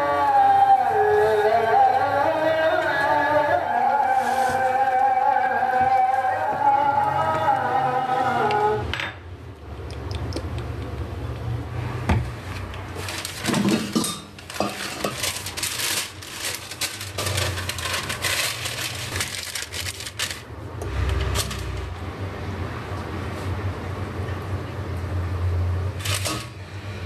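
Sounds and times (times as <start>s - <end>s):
parchment paper crackling: 3.9s - 6.8s, 12.5s - 21.8s
pots and utensils clinking: 13.0s - 20.3s.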